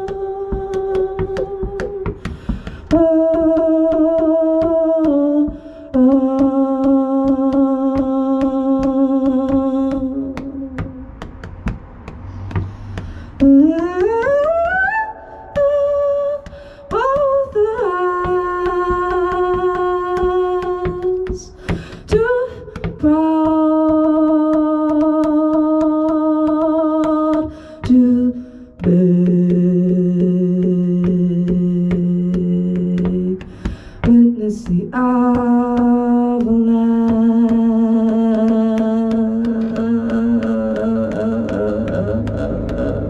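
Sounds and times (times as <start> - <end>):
woman humming into a microphone: 0.0 - 2.2, 34.0 - 43.0.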